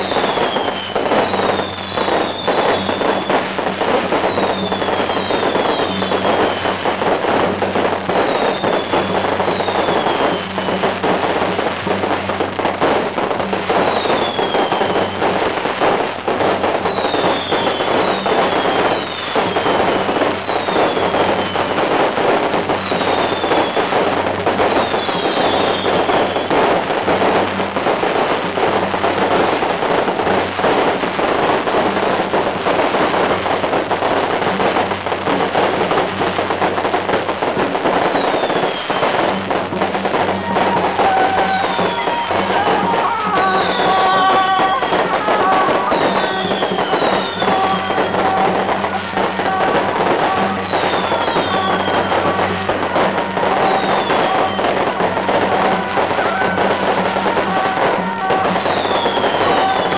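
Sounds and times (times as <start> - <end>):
high whistles falling in pitch: 0.0 - 11.0, 13.6 - 26.9, 37.8 - 39.4, 40.0 - 59.9
firecrackers crackling: 0.0 - 59.9.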